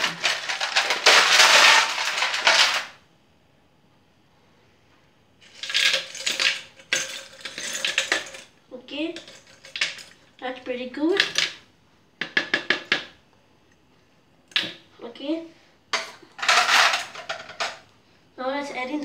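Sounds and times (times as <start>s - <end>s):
ice cubes clattering in plastic jar: 0.0s - 3.0s, 5.4s - 8.5s, 9.2s - 10.2s, 16.4s - 17.8s.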